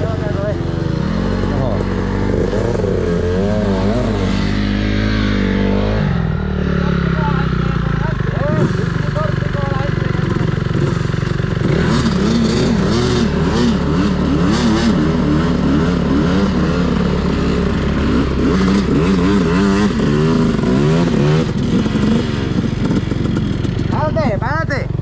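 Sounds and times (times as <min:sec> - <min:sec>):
dirt bike engine revving: 0:00.0 - 0:25.0
quad bike engine: 0:00.0 - 0:25.0.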